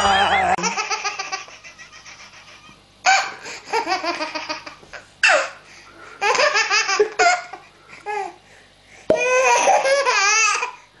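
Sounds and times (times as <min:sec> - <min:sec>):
baby laughing and squealing: 0:00.0 - 0:04.6, 0:09.2 - 0:10.8.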